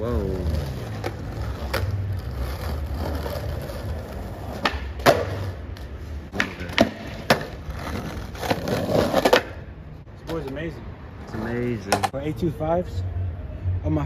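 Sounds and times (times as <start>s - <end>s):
skateboard wheels rolling on asphalt: 0.0s - 12.1s
skateboard deck clacking on pavement: 2.6s - 9.6s, 11.8s - 12.2s.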